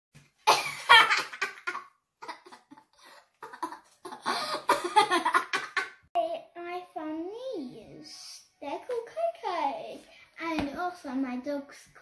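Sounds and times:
girl laughing: 0.5 - 6.0.

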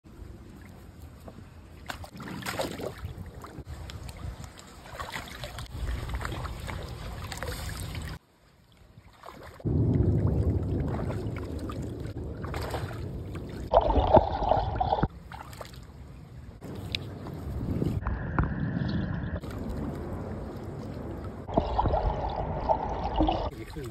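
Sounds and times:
water splashing in pool: 1.8 - 16.0, 19.4 - 23.9.

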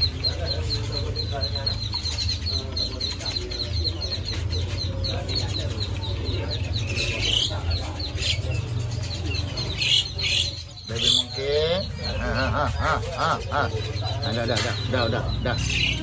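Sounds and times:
caged birds chirping: 0.0 - 16.0
fowl clucking: 9.2 - 16.0.

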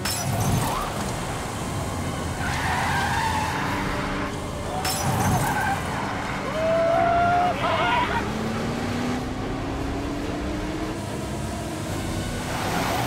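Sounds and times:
car engines running hard: 0.0 - 13.0
tires squealing: 0.1 - 9.4.

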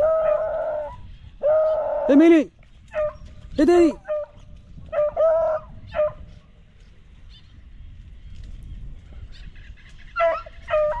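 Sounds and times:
hounds baying: 0.0 - 2.2, 2.9 - 6.4, 9.4 - 11.0.

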